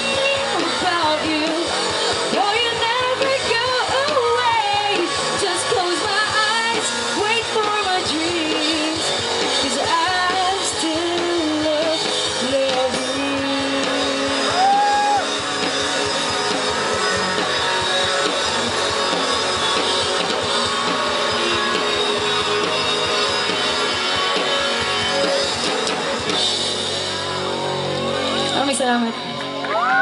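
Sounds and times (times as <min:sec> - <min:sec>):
woman singing: 0:00.0 - 0:14.9
drum kit: 0:00.0 - 0:30.0
electric guitar: 0:00.0 - 0:30.0.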